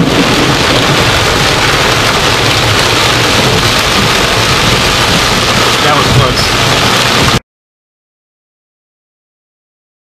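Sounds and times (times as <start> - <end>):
heavy rain on car roof: 0.0 - 7.4.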